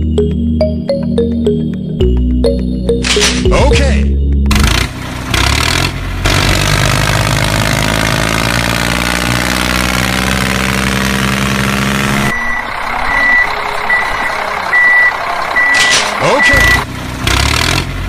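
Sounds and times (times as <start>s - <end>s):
tractor engine running: 0.0s - 18.0s
reversing alarm beeping: 12.3s - 16.9s.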